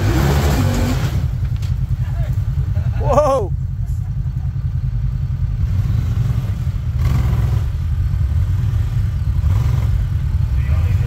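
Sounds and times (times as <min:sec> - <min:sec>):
engine throttle bursts: 0:00.0 - 0:01.4
engine rumbling under load: 0:00.0 - 0:11.0.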